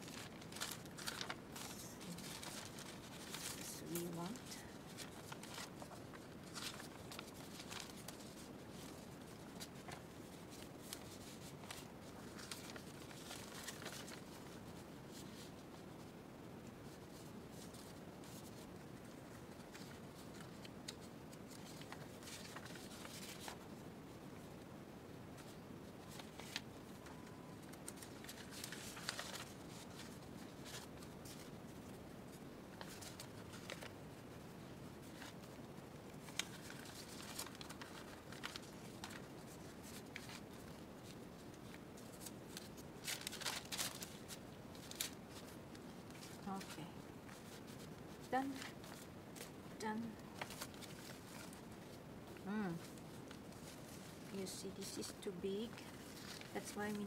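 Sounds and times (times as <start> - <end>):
paper rustling: 0.0 - 24.6, 25.3 - 57.0
faint steady hiss: 0.0 - 57.0.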